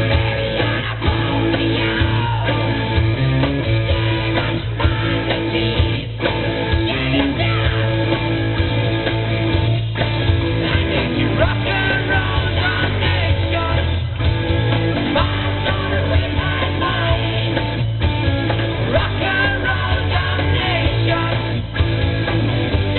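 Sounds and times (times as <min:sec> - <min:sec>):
drum kit: 0:00.0 - 0:22.9
electric guitars: 0:00.0 - 0:22.9
man singing into a mic: 0:10.6 - 0:13.9, 0:15.2 - 0:17.5, 0:18.9 - 0:21.5.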